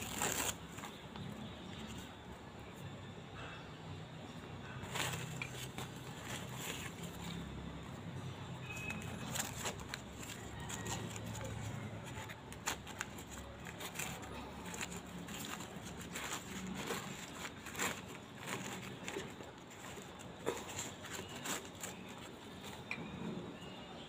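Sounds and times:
newspaper rustling and crinkling: 0.0 - 2.2, 4.6 - 22.9.

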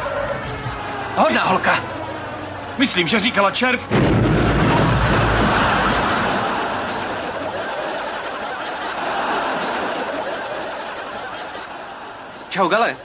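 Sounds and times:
explosion rumble: 3.9 - 7.3
studio audience laughter: 4.7 - 13.0.

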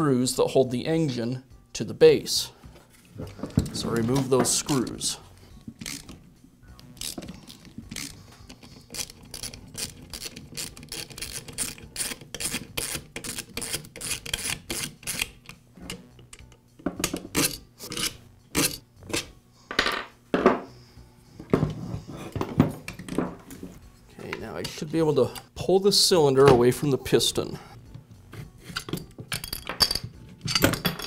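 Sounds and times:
screwdriver rasping clicks: 5.8 - 6.2
knocks of parts handled: 21.4 - 24.8.

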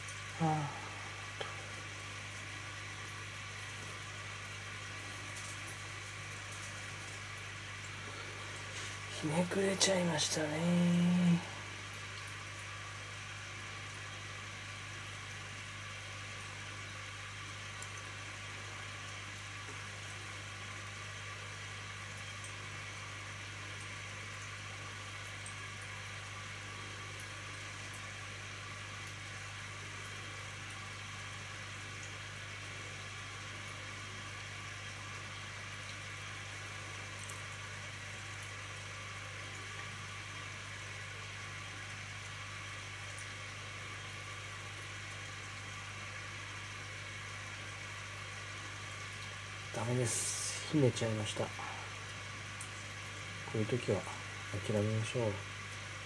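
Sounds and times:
constant hiss: 0.0 - 56.0
low electrical hum: 0.0 - 56.0
even hiss: 49.7 - 52.1.

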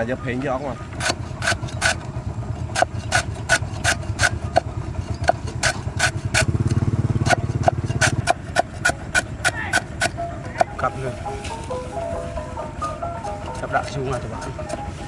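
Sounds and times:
cleaver chopping on wooden board: 1.0 - 2.0, 2.7 - 10.7.

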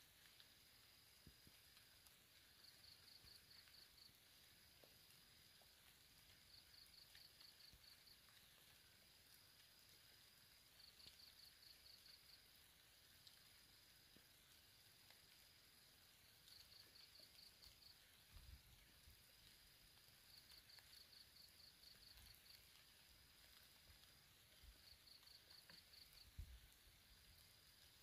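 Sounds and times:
high insect trill: 0.1 - 28.0.

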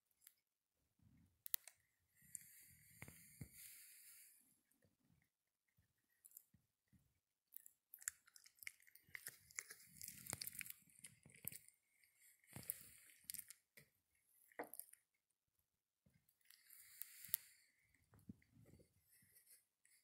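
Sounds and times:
bread being torn apart: 7.9 - 11.7.

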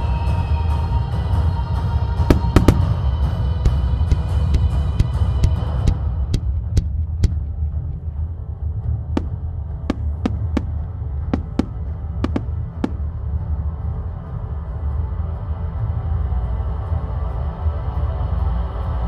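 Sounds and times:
throbbing bass drone music: 0.0 - 19.0
firework reports cracking: 2.3 - 5.6, 11.4 - 13.1.

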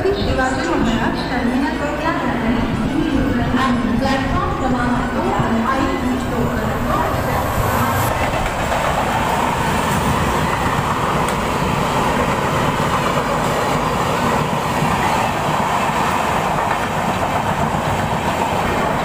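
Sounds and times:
passing train: 0.0 - 19.0
train wheels clattering on rails: 6.4 - 19.0.

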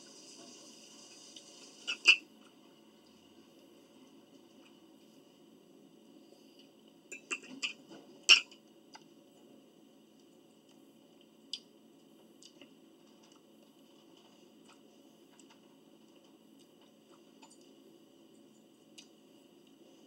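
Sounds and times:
low steady hum: 0.0 - 20.0
mouth clicks and smacks eating: 12.4 - 12.7.

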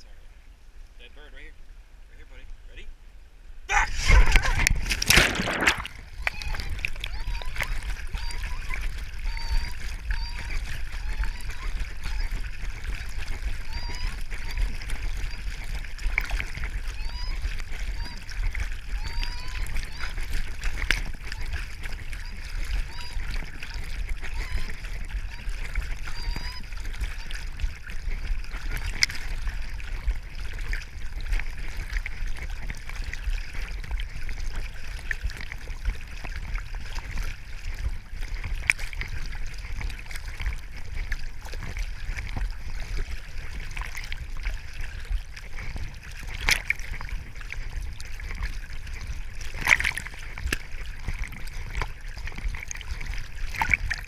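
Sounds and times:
steady low rumble: 0.0 - 26.1
water sloshing and splashing: 3.7 - 54.0.

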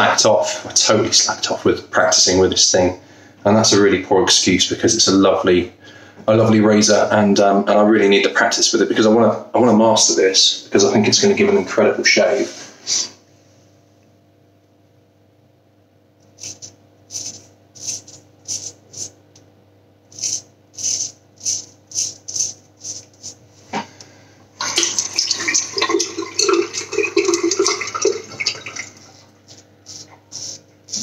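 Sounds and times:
razor scraping stubble: 16.3 - 19.2, 20.1 - 23.4
tap running: 23.1 - 29.6.

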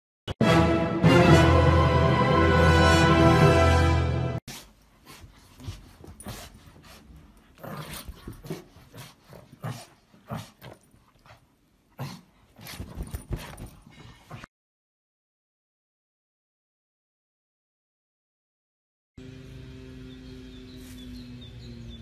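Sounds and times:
music: 0.3 - 4.4
small dog growling: 7.5 - 10.8, 12.0 - 12.8.

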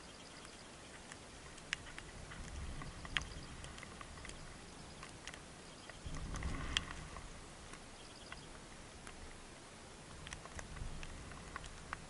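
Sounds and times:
beaks tapping on seed: 0.0 - 7.0, 7.7 - 9.3, 10.1 - 12.0
low rustling: 1.1 - 9.4.

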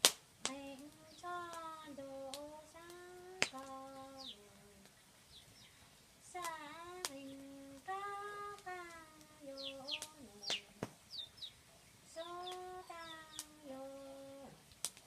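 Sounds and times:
woman singing unaccompanied: 0.4 - 5.0, 6.2 - 11.0, 12.1 - 14.6
faint high chirps: 2.9 - 6.0, 6.6 - 14.5.

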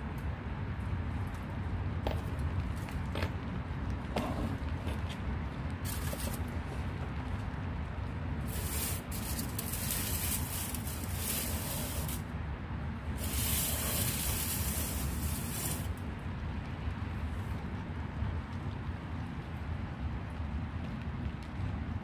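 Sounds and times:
rain hissing: 8.4 - 12.2, 13.1 - 16.0.

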